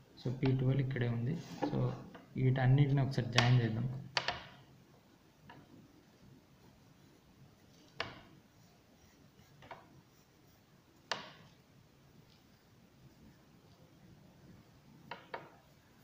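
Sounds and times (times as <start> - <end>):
pencil tapping on paper: 11.1 - 11.6.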